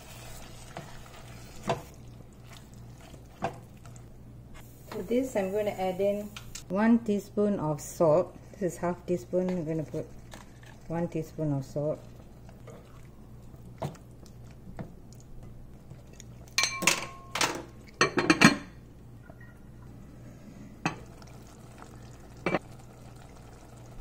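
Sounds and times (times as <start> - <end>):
glass lid clinking on ceramic dish: 16.6 - 17.4.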